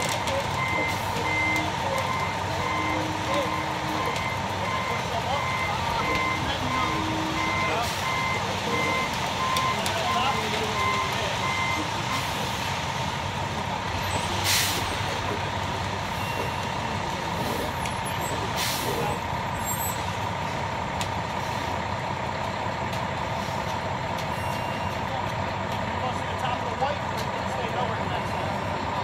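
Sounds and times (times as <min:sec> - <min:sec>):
reversing beeps: 0:00.0 - 0:12.3
concrete mixer truck running: 0:00.0 - 0:29.0
short hisses of air: 0:14.4 - 0:14.9.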